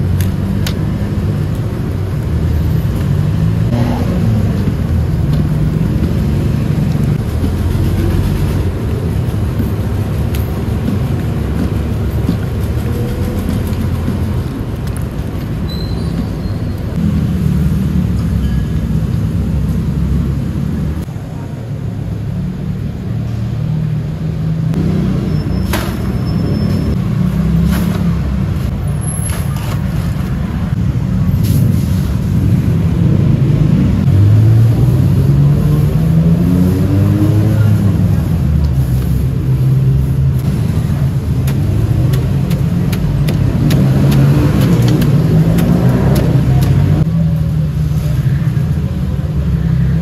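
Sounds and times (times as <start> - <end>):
street traffic engine rumble: 0.0 - 50.0
vehicle speeding up: 3.2 - 9.3, 32.3 - 47.1.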